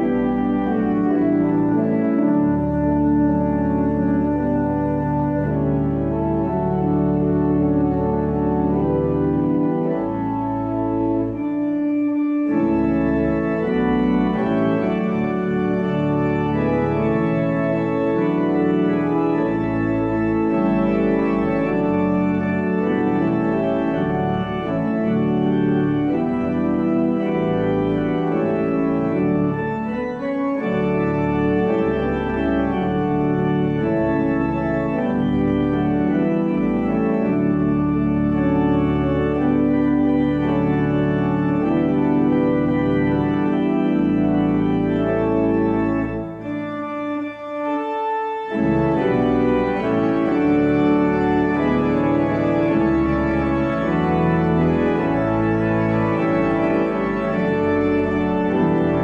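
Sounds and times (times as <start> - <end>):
church pipe organ chords: 0.0 - 59.0.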